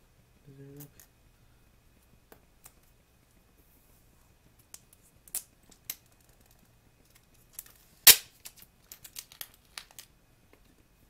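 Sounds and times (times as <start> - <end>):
sharp packaging snap: 8.0 - 9.9
packaging clicks and crackles: 8.4 - 10.1.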